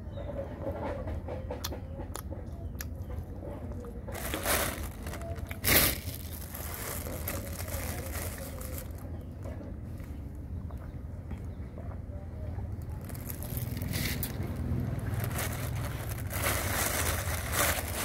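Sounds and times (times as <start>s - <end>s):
plastic bag crinkling and rustling: 4.1s - 9.1s, 12.9s - 18.0s.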